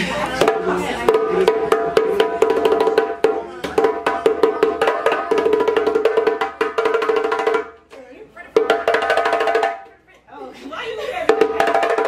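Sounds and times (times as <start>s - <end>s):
hand drumming on djembes: 0.4s - 7.9s, 8.5s - 9.9s, 11.3s - 12.0s.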